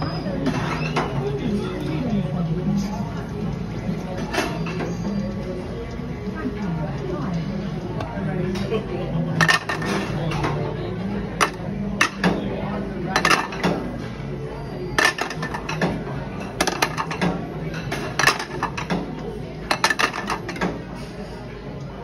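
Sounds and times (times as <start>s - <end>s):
ceramic plates clinking: 9.4s - 10.6s, 11.3s - 12.5s, 13.1s - 13.9s, 14.9s - 19.1s, 19.7s - 20.8s.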